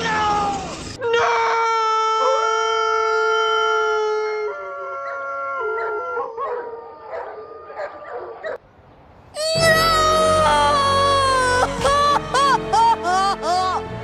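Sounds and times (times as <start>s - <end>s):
cartoon man yelling: 9.4s - 13.9s
wavering cries: 9.4s - 14.0s.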